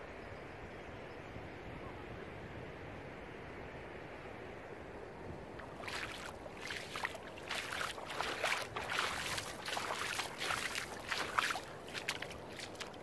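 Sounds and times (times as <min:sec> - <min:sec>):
footsteps on sand: 0:05.6 - 0:13.0.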